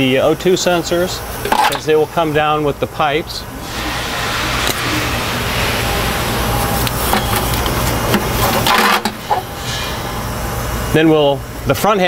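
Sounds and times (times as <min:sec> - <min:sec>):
low shop hum: 0:00.0 - 0:12.0
handling noise: 0:05.5 - 0:09.7.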